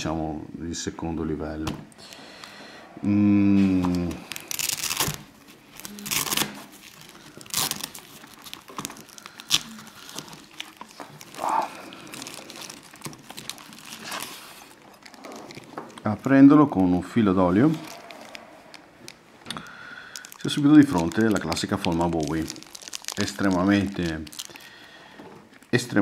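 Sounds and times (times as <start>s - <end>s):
person humming: 3.0s - 4.5s, 5.8s - 6.4s
plastic and fabric rustling: 3.7s - 26.0s.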